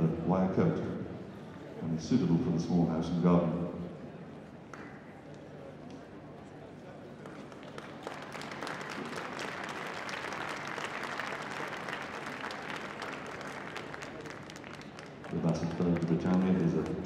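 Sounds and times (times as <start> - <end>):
audience applauding: 7.2 - 17.0.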